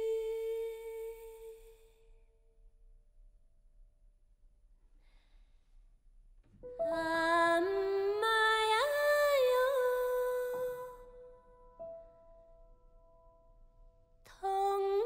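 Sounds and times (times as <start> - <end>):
woman singing a lullaby: 0.0 - 2.0, 6.8 - 11.1, 14.3 - 15.0.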